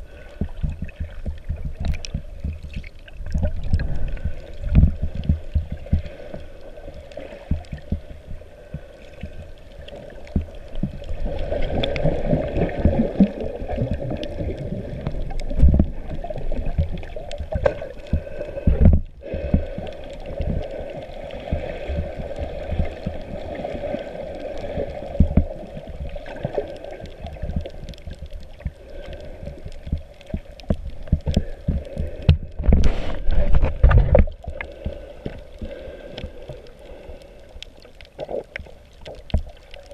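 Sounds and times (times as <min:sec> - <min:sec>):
underwater rush of water: 0:00.0 - 0:39.9
low knocks and thumps: 0:30.7 - 0:34.4.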